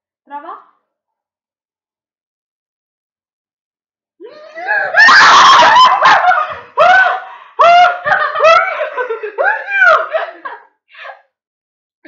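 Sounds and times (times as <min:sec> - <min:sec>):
girls shrieking and laughing: 0:04.2 - 0:10.6.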